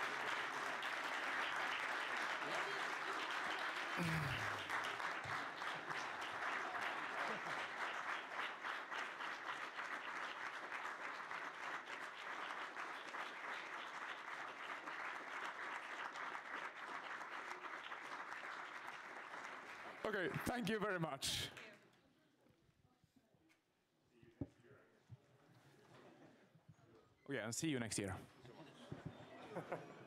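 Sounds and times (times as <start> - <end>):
audience applauding: 0.0 - 21.4.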